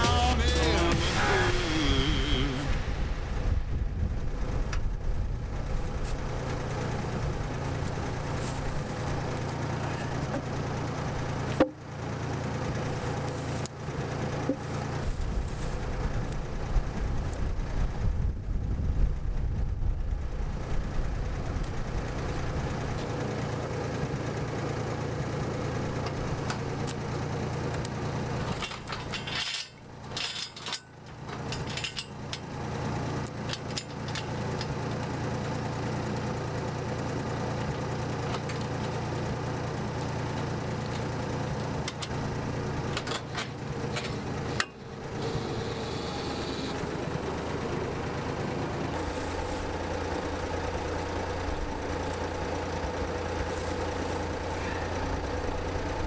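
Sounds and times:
engine idling: 0.0s - 56.0s
metal chain clinking and rattling: 28.3s - 34.7s.

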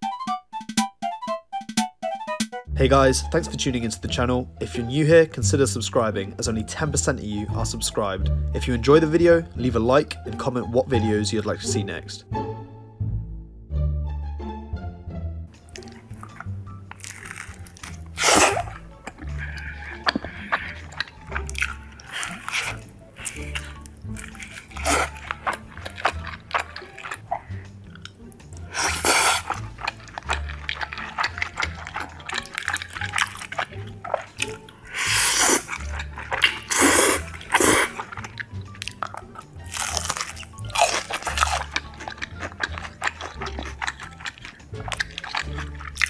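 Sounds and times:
chewing and biting food: 15.6s - 46.0s
slurping noodles: 15.6s - 46.0s.

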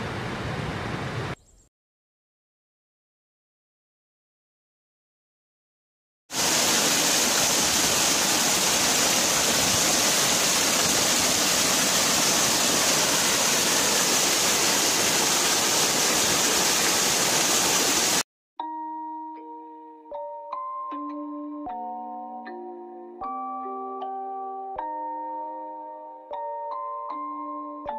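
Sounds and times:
waterfall rushing: 6.3s - 18.2s
music with chime-like notes: 18.6s - 27.9s.

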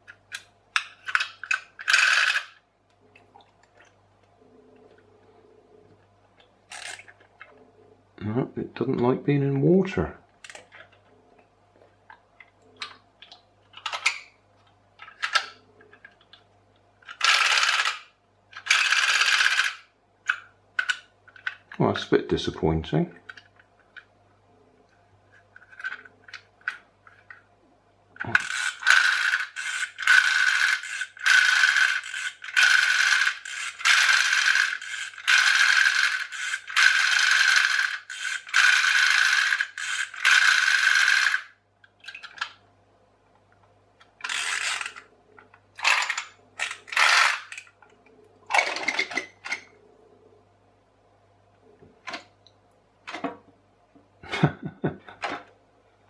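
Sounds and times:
clockwork toy whirring and ratcheting: 1.0s - 2.6s, 6.7s - 7.0s, 17.1s - 19.9s, 28.2s - 41.5s, 44.2s - 45.0s, 45.8s - 47.7s.

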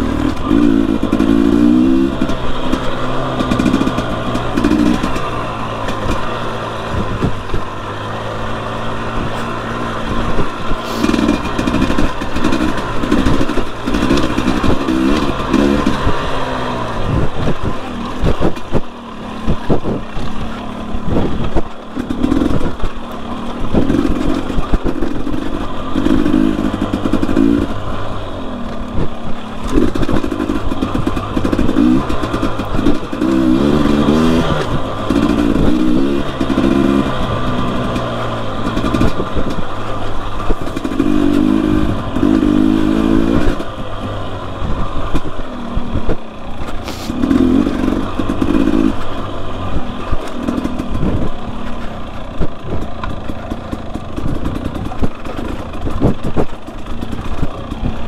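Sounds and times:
bike knocks and clatter: 0.0s - 7.8s, 28.8s - 44.2s, 45.0s - 58.0s
dirt bike engine revving: 0.0s - 58.0s.

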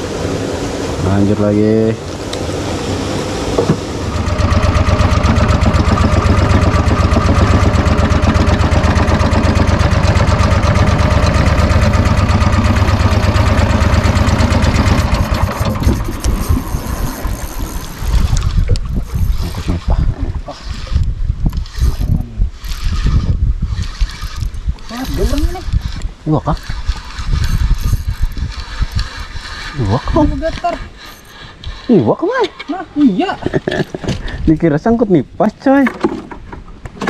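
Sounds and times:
boat engine running: 0.0s - 32.2s
irregular knocks and rattles: 35.7s - 37.0s.

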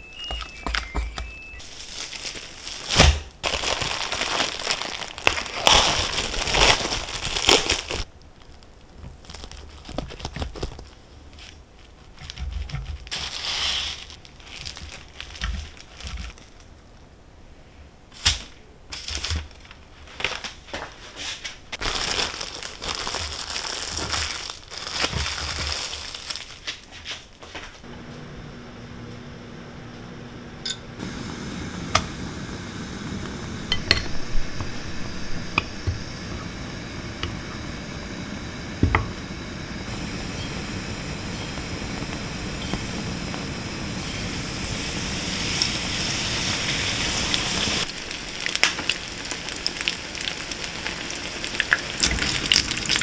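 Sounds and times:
crinkling and rustling: 0.1s - 17.1s, 18.1s - 28.2s.

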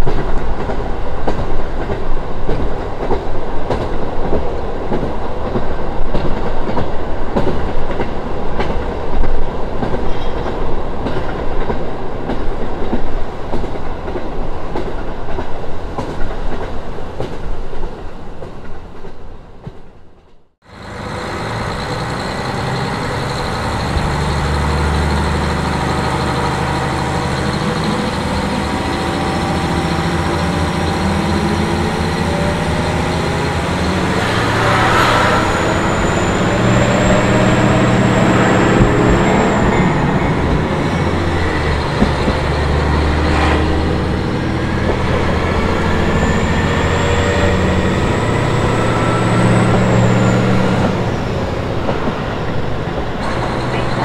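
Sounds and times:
diesel railcar engine running: 20.6s - 54.0s
high thin squeal: 21.1s - 50.8s.

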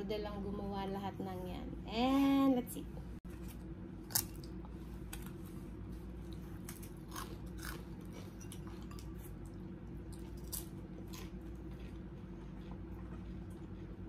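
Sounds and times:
steady low hum: 0.0s - 14.0s
crunching and chewing: 3.3s - 14.0s.

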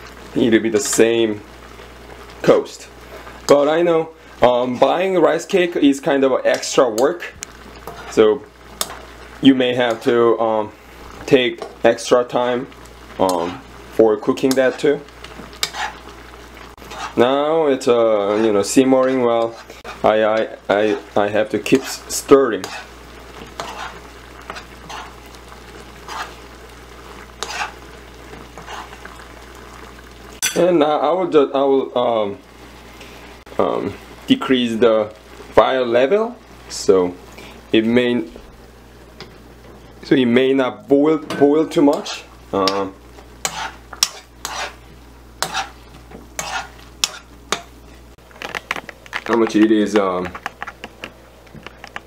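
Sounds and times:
ladle stirring in a pan: 0.0s - 30.7s, 41.2s - 52.0s
sauce simmering and sizzling: 0.0s - 52.0s.

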